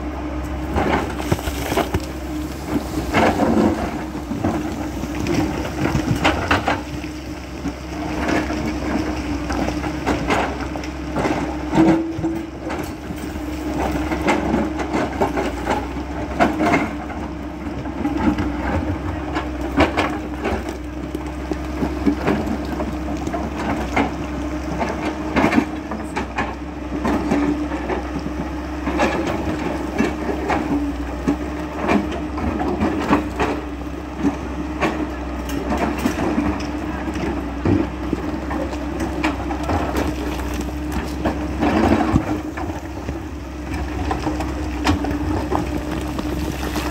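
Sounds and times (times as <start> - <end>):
excavator diesel engine humming: 0.0 - 46.9
bucket knocking and stones clattering: 0.7 - 7.3, 37.6 - 46.9.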